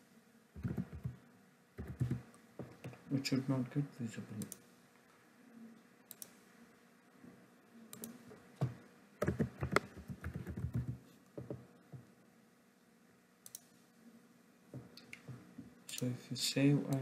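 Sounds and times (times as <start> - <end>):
computer keyboard typing: 0.6 - 1.2, 1.8 - 3.0, 8.0 - 11.6.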